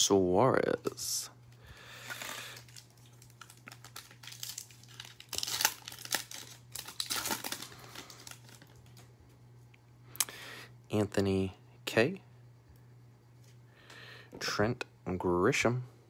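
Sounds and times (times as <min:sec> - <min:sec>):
faint low hum: 0:00.0 - 0:16.0
foil wrapper crinkling and tearing: 0:01.9 - 0:09.1.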